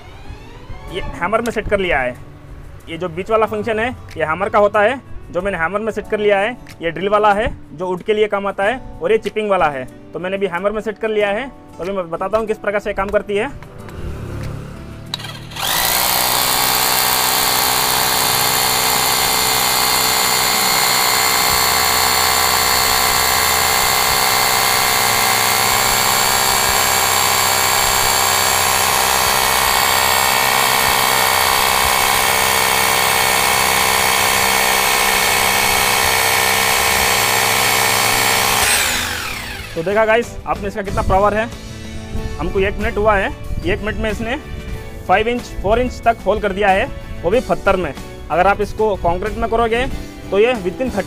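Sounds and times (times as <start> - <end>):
hammer drill boring into stone: 15.1 - 40.4.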